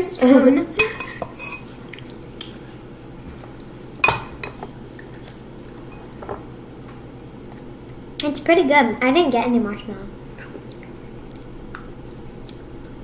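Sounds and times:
metal spoons clinking on dishes: 0.8 - 1.7, 4.0 - 4.7.

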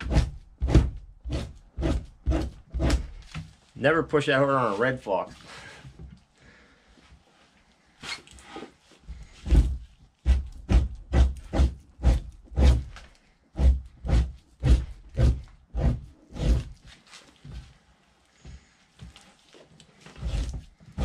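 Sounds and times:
knife scraping hide: 0.0 - 3.4, 8.0 - 17.4, 19.9 - 21.0.

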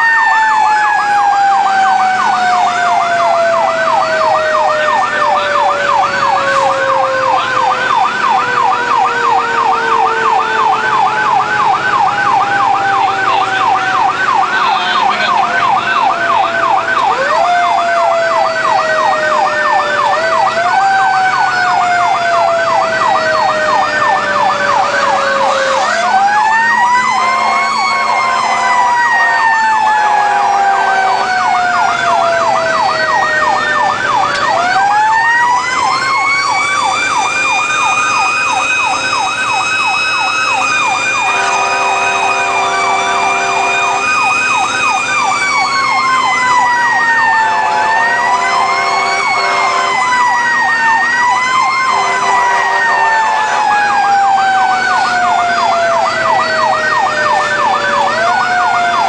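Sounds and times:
electronic siren yelp: 0.0 - 59.0
siren wailing: 0.0 - 59.0
fire engine horn blasts: 4.4 - 7.8, 12.7 - 17.1, 25.1 - 31.7, 41.1 - 44.4, 47.3 - 51.2, 51.8 - 54.0.

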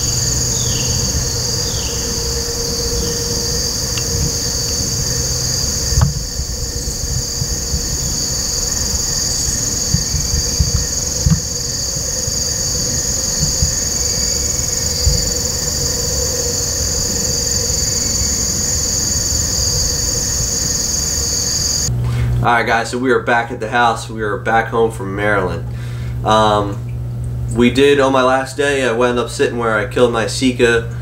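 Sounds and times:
crickets chirping: 0.0 - 21.9
low rumble: 0.0 - 22.0
short dull thumps: 9.8 - 12.4.

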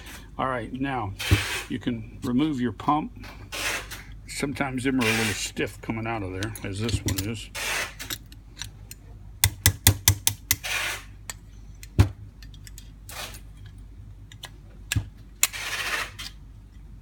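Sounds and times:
screwdriver scraping metal: 5.0 - 5.6, 6.4 - 8.7, 10.0 - 11.4, 15.4 - 16.4.

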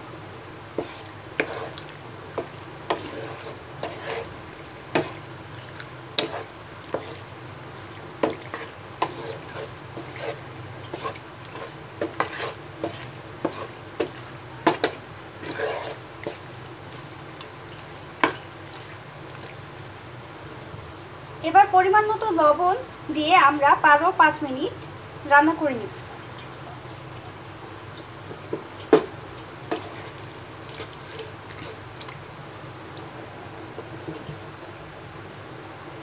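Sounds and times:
spatula scraping pan: 0.7 - 5.3, 6.1 - 19.0, 29.4 - 31.9.

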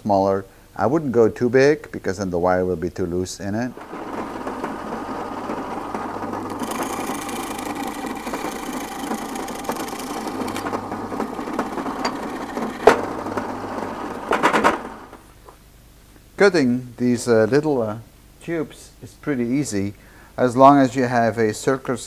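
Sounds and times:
drill press boring wood: 3.7 - 15.3.

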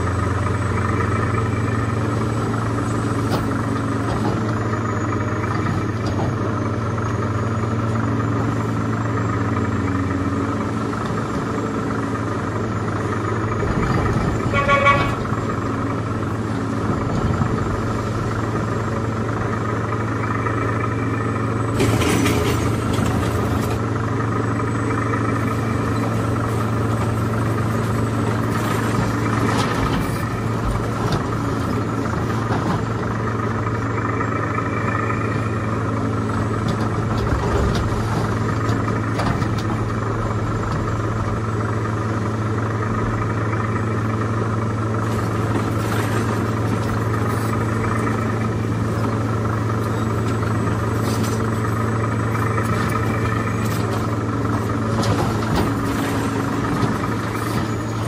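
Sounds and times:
electronic diesel engine running: 0.0 - 58.0
horn toot: 14.5 - 15.3.

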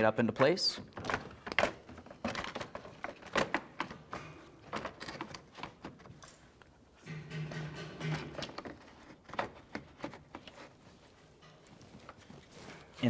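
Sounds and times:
hard plastic knocks and rattles: 0.4 - 6.2, 7.0 - 10.6.

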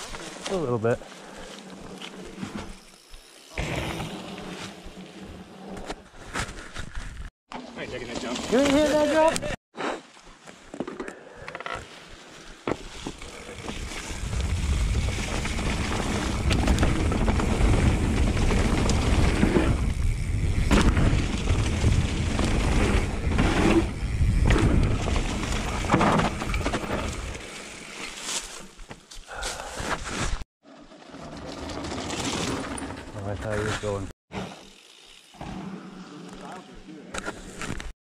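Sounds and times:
tyres rolling over dirt and leaves: 7.7 - 9.3, 12.7 - 28.8, 30.6 - 34.0
bike rattling over bumps: 12.7 - 28.0, 30.8 - 34.0
wind rushing on camera: 13.7 - 25.8.

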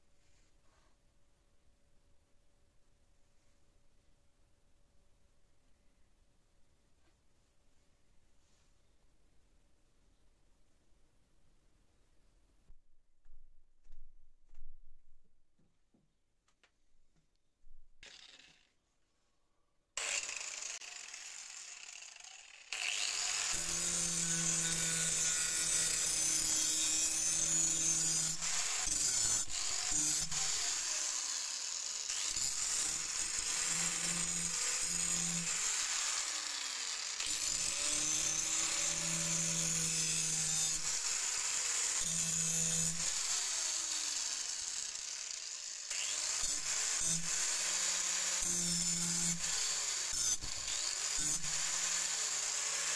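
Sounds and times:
angle grinder grinding steel: 18.0 - 18.7, 20.0 - 52.9.

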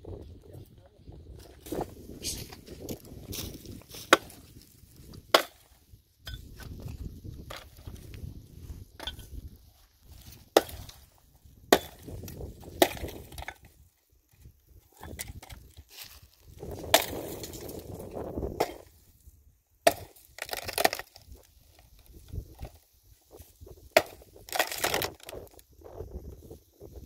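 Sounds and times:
brush crunching and crackling: 1.4 - 5.8, 15.0 - 18.9
firewood cracking: 1.6 - 13.8, 14.4 - 18.9, 19.8 - 22.8, 23.8 - 25.6.

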